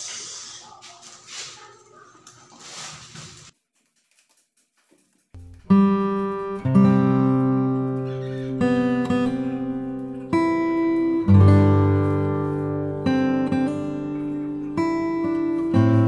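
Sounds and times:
acoustic guitar strumming chords: 0:05.4 - 0:16.0.

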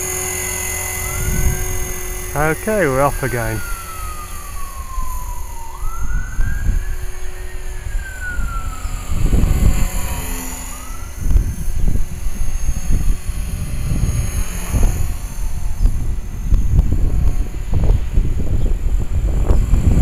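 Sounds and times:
wind rumble on microphone: 0:00.0 - 0:02.4, 0:03.6 - 0:20.0
siren wailing: 0:00.0 - 0:11.4
rc helicopter whine: 0:00.0 - 0:20.0.

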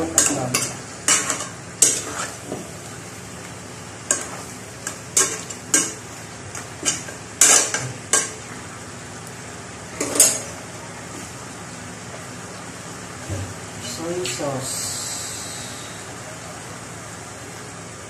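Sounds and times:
meat sizzling in pan: 0:00.0 - 0:08.9.

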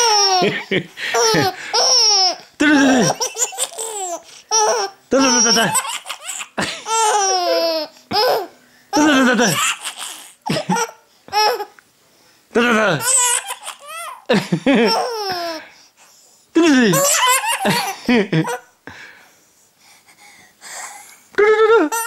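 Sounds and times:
baby laughing: 0:00.0 - 0:11.7, 0:13.0 - 0:15.6, 0:16.9 - 0:18.7, 0:21.4 - 0:22.0.

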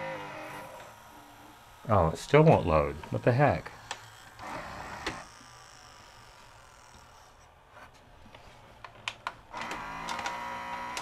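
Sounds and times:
loading motor whine: 0:00.0 - 0:07.6, 0:09.5 - 0:11.0
small mechanical clicks: 0:09.5 - 0:11.0.

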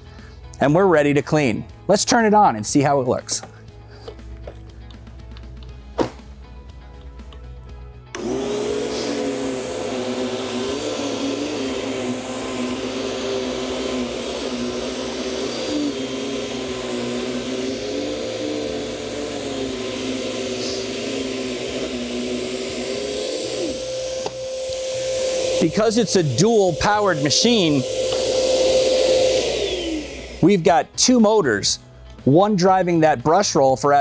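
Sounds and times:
upright vacuum cleaner running: 0:08.1 - 0:31.0.

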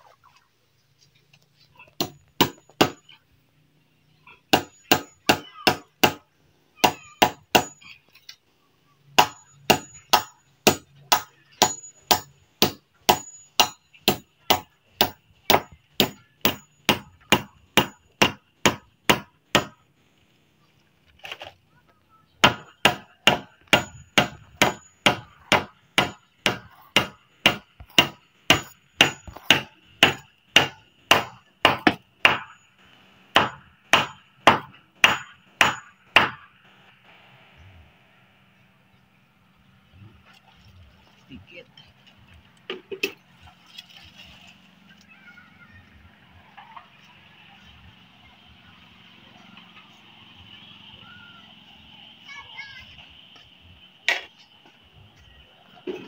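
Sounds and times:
hammer striking: 0:02.0 - 0:03.1, 0:04.5 - 0:07.8, 0:09.2 - 0:19.8, 0:22.4 - 0:32.7, 0:33.3 - 0:36.5.

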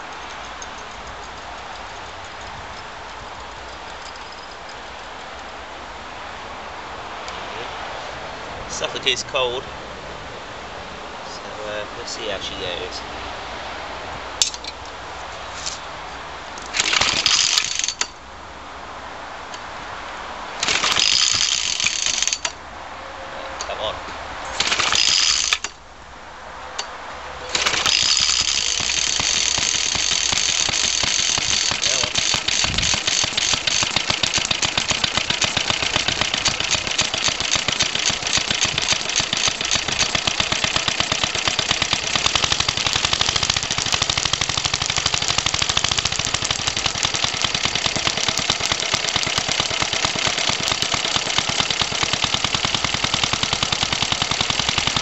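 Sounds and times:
two-stroke engine running: 0:27.5 - 0:55.0.

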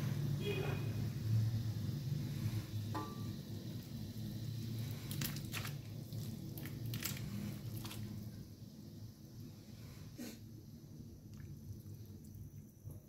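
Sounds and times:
steady low hum: 0:00.0 - 0:13.0
wet crackles and squelches: 0:04.6 - 0:08.4.

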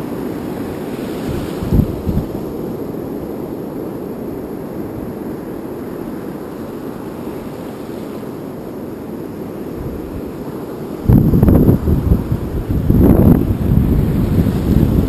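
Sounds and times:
wind buffeting microphone: 0:01.2 - 0:02.7, 0:09.7 - 0:15.0.

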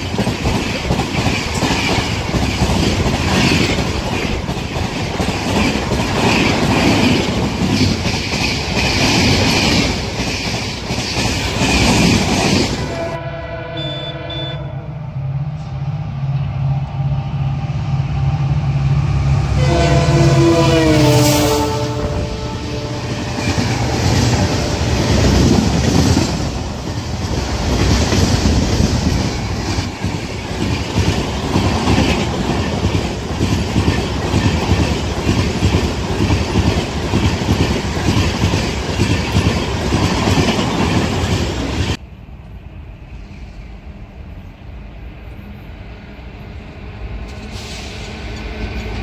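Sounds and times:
train wheels clattering over rails: 0:00.0 - 0:13.0, 0:23.0 - 0:42.0
steady rail rumble: 0:00.0 - 0:49.0.

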